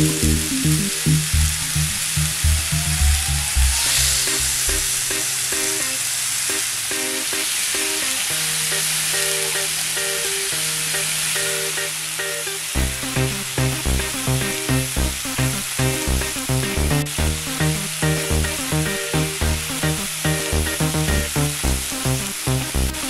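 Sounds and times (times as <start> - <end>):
background music with pulsing beat: 0.0 - 5.2, 12.8 - 23.0
chicken sizzling on a grill pan: 0.0 - 23.0.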